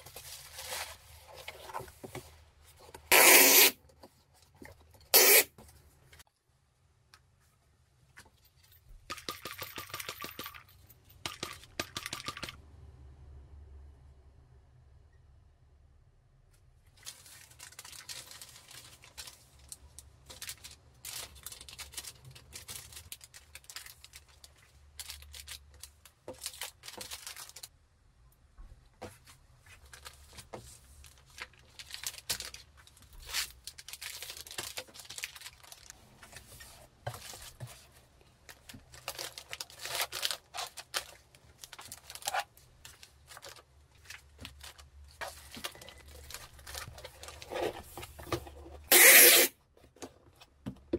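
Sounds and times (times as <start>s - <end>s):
plastic bags and bubble wrap crinkling: 0.0s - 2.6s, 16.9s - 27.7s, 29.6s - 49.1s.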